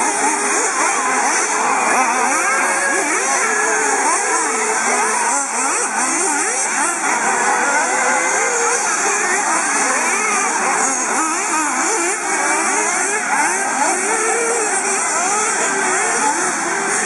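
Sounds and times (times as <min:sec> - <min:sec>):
rc car engines buzzing: 0:00.0 - 0:17.0.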